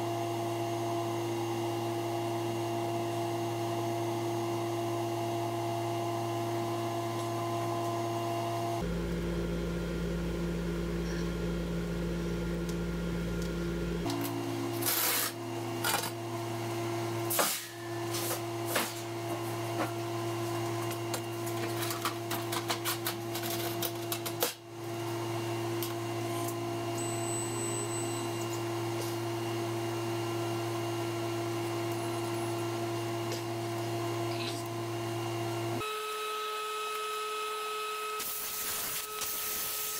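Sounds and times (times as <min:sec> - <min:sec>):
shop machinery humming: 0:00.0 - 0:39.9.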